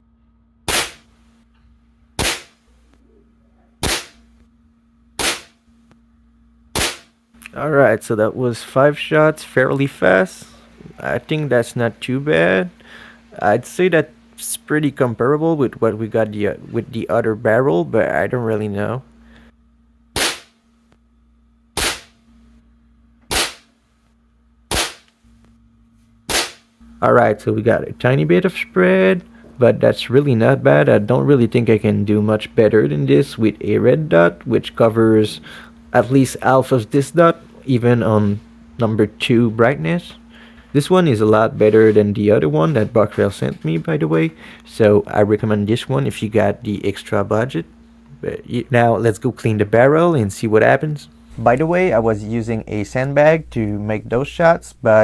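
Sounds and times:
air rifle shots: 0.7 - 1.1, 2.2 - 2.6, 3.8 - 4.2, 5.2 - 5.6, 6.7 - 7.1, 20.2 - 20.6, 21.8 - 22.1, 23.3 - 23.7, 24.7 - 25.1, 26.3 - 26.6.

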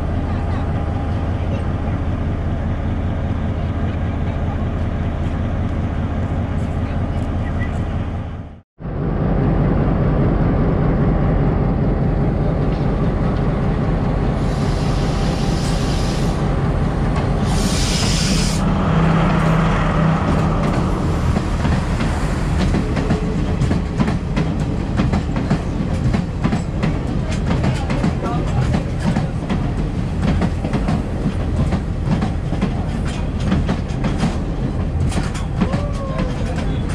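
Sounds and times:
diesel train rumble: 0.0 - 36.9
air hissing: 14.4 - 16.5, 17.4 - 18.7
wheels clicking over rail joints: 20.6 - 36.9.

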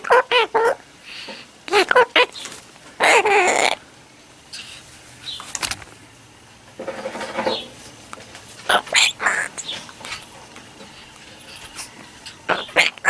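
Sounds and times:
macaw raspy call: 0.0 - 3.8, 8.7 - 10.3, 11.4 - 13.0.

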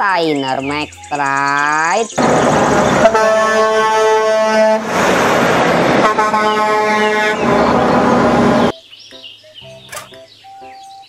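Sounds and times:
truck engines and traffic: 0.0 - 10.8
truck air horn blasts: 2.2 - 8.7.

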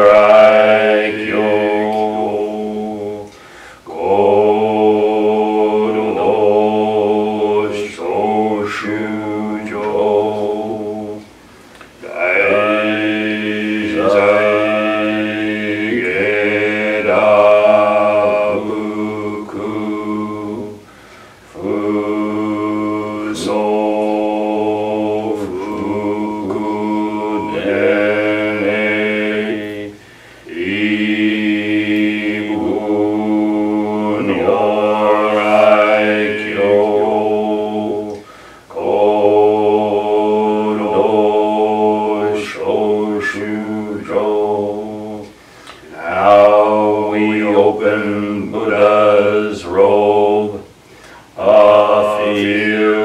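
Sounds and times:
men chanting in unison: 0.0 - 11.4, 12.0 - 53.0.

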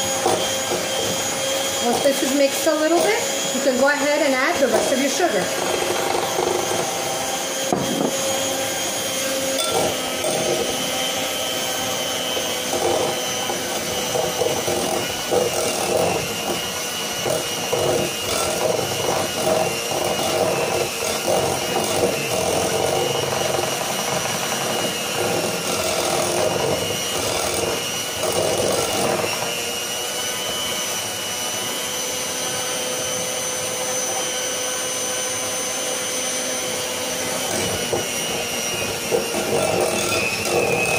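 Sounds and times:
electric hand mixer whine: 0.0 - 40.9.

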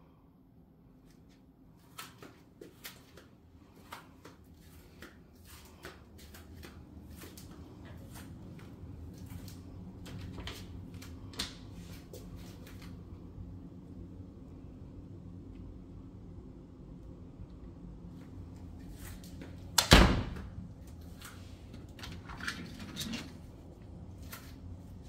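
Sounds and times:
footsteps on tile floor: 1.2 - 13.0.

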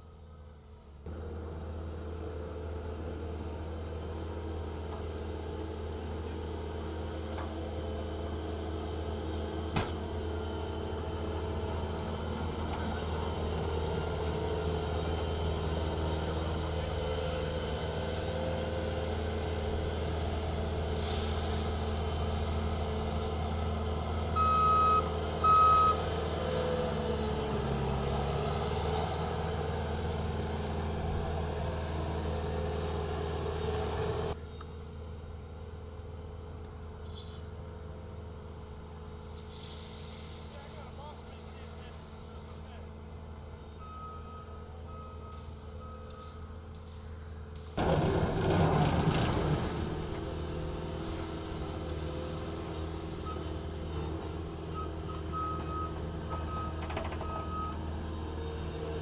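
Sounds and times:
heavy equipment engine running: 0.0 - 59.0
burst of hiss: 20.7 - 23.5, 38.9 - 43.3.

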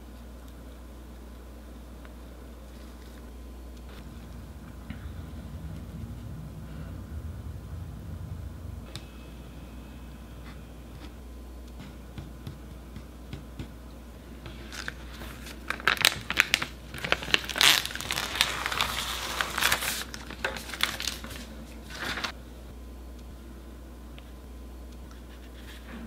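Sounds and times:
plastic sheet crinkling: 14.5 - 22.3.

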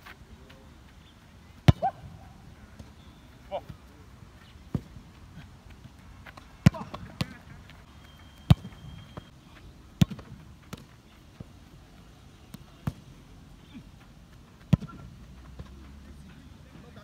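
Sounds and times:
football being kicked: 1.6 - 2.2, 6.6 - 7.4, 8.5 - 9.2, 10.0 - 10.9, 14.7 - 15.8.

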